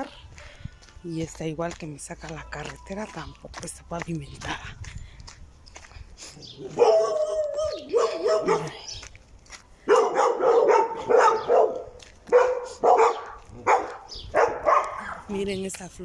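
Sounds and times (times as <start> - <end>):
dog barking: 6.7 - 8.8, 9.9 - 15.2.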